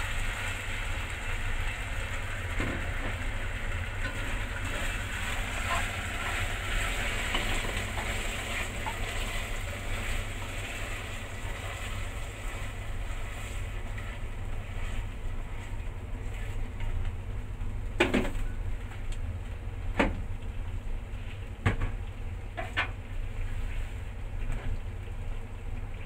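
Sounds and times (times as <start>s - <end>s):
food sizzling in a pan: 0.0s - 16.6s.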